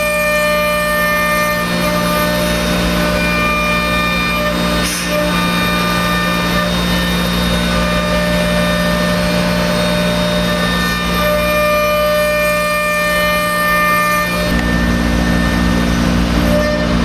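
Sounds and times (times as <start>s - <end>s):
router spindle whine: 0.0s - 17.0s.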